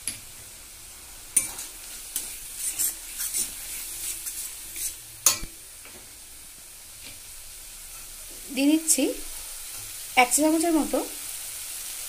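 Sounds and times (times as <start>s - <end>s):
faint sizzle of frying: 0.0s - 12.0s
metal spatula scraping a pan: 1.3s - 5.5s.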